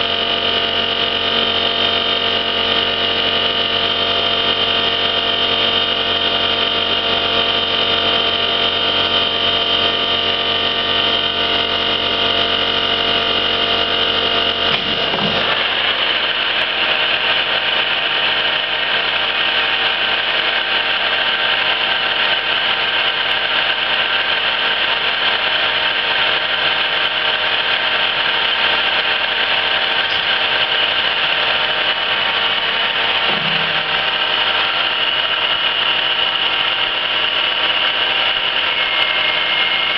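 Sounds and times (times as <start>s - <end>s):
lathe mechanical whine: 0.0s - 39.9s.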